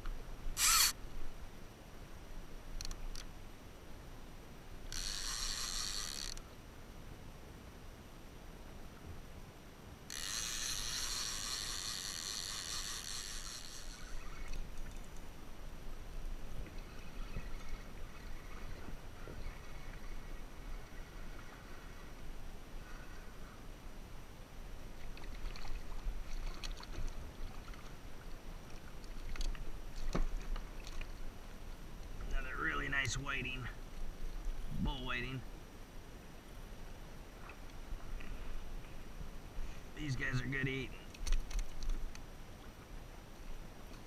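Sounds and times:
fishing reel drag buzzing: 0.6 - 1.0, 4.9 - 6.4, 10.1 - 14.8
water splashing against kayak: 25.0 - 31.3.

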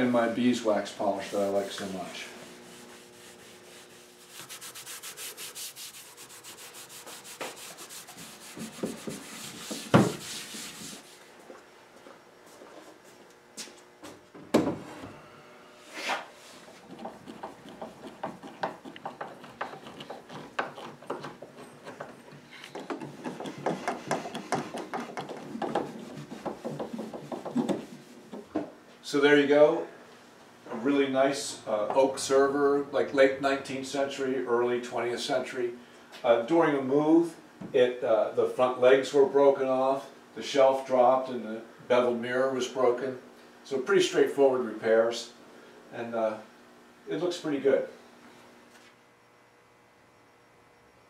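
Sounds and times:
steel wool rubbing wood: 0.0 - 11.3, 15.8 - 28.5.

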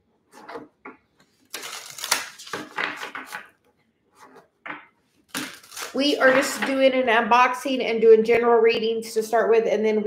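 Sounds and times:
cards being shuffled: 1.4 - 3.5.

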